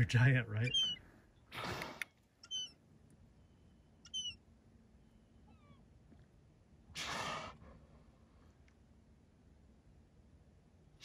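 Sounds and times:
high mewing call: 0:00.6 - 0:01.0, 0:01.6 - 0:02.8, 0:04.0 - 0:04.4.

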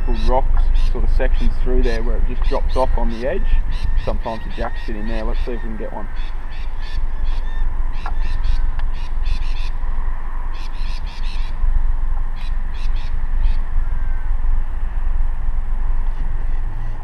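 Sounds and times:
rapid chattering bird calls: 0:00.0 - 0:09.8, 0:10.6 - 0:11.6
wind rumbling on microphone: 0:00.0 - 0:17.0.

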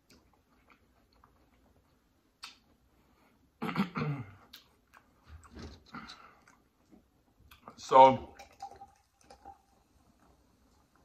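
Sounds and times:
eating noises: 0:00.0 - 0:03.6, 0:04.3 - 0:07.8
person clearing throat: 0:03.6 - 0:04.5.

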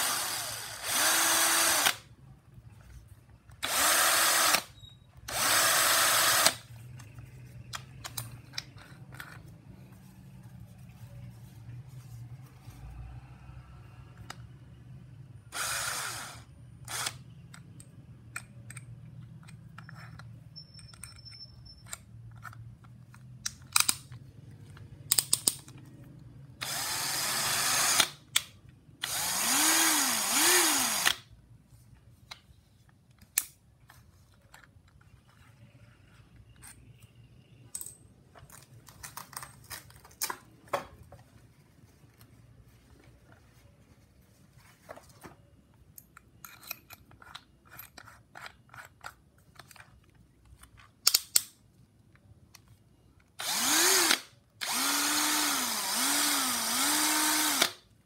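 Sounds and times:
cordless drill running: 0:00.0 - 0:02.0, 0:03.6 - 0:04.7, 0:05.3 - 0:06.6, 0:15.5 - 0:17.2, 0:26.6 - 0:28.1, 0:29.0 - 0:31.2, 0:53.4 - 0:57.8
drill handling clicks: 0:26.6 - 0:31.3, 0:53.4 - 0:57.8.

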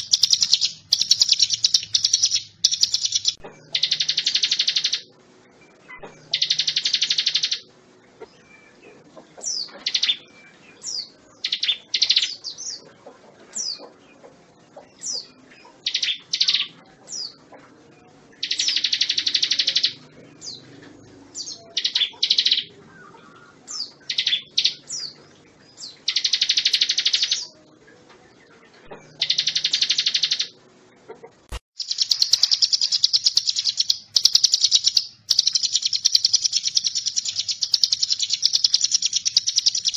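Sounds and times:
bird buzzy trills: 0:00.0 - 0:12.9, 0:18.3 - 0:25.2, 0:25.8 - 0:27.6, 0:28.6 - 0:30.6, 0:31.8 - 0:39.9.

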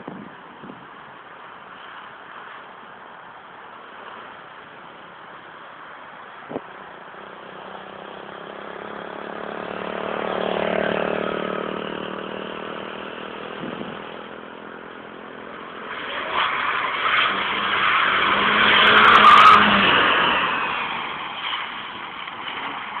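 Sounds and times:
tyres skidding and squealing: 0:04.0 - 0:23.0
car engine revving: 0:06.5 - 0:22.0.

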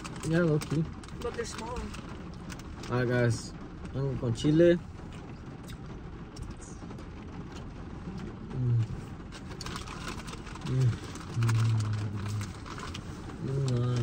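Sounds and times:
chewing: 0:07.5 - 0:14.0
snack bag crinkling: 0:09.4 - 0:13.0.

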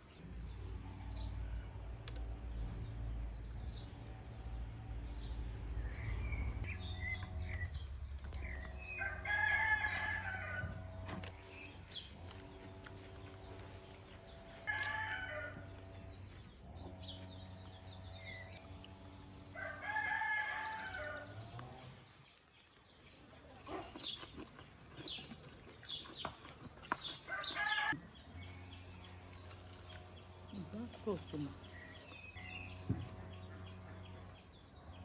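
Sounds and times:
rooster crowing: 0:08.8 - 0:10.9, 0:14.6 - 0:15.8, 0:19.5 - 0:21.4, 0:27.3 - 0:28.0.

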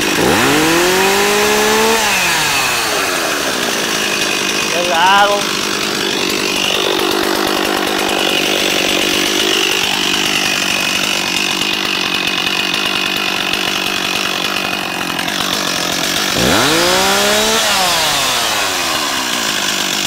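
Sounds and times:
chainsaw idling and revving: 0:00.0 - 0:20.0.

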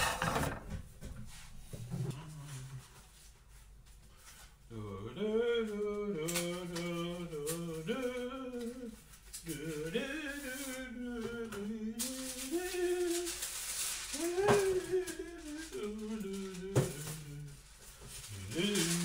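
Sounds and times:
man singing wordless tune: 0:04.7 - 0:13.5, 0:14.1 - 0:19.0.

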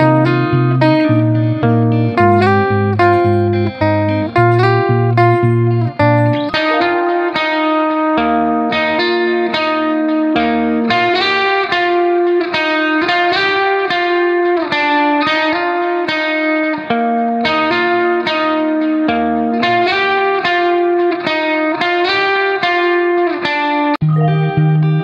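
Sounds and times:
plucked string music: 0:00.0 - 0:25.0
sustained chord tones: 0:02.0 - 0:07.5.

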